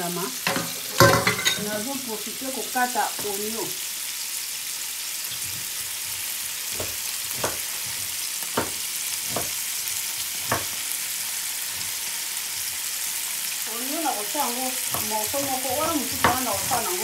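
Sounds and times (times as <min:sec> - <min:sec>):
shrimp sizzling in oil: 0:00.0 - 0:17.0
spatula knocking against pan: 0:06.7 - 0:07.9, 0:08.5 - 0:09.6, 0:10.5 - 0:10.8, 0:14.8 - 0:17.0.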